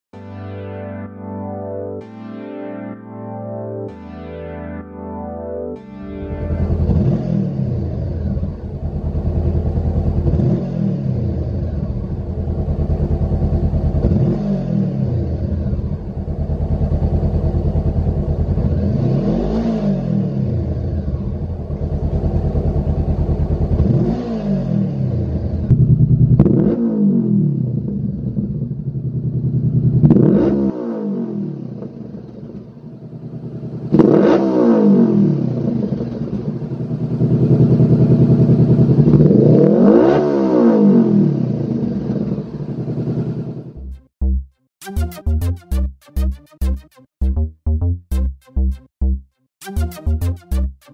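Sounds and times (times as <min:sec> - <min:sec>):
motorcycle engine idling and revving: 0:06.2 - 0:44.4.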